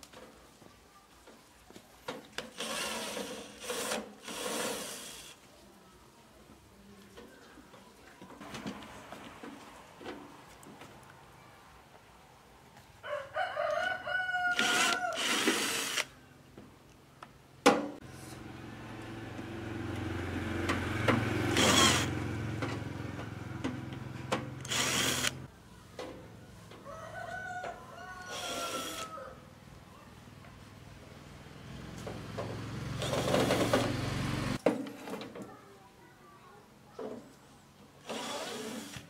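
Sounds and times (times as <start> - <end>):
cordless drill motor: 2.6 - 5.4, 14.5 - 16.1, 21.6 - 22.1, 24.6 - 25.4, 28.3 - 29.0, 33.0 - 33.9, 38.0 - 39.0
rooster crowing: 13.0 - 15.4, 26.8 - 29.5.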